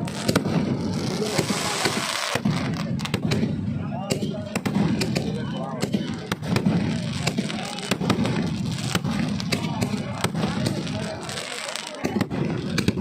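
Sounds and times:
firecrackers banging: 0:00.0 - 0:13.0
people's voices: 0:00.0 - 0:13.0.

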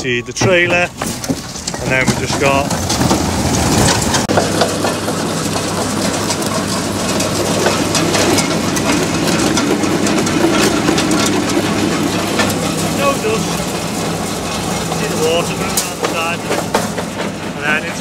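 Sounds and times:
clatter and knocks: 0:00.0 - 0:18.0
diesel machinery engine running: 0:00.0 - 0:18.0.

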